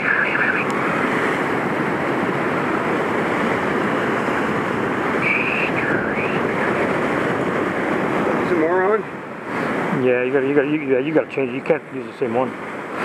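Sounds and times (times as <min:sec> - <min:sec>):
wind on microphone: 0:00.0 - 0:10.1
breaking surf: 0:00.0 - 0:13.0.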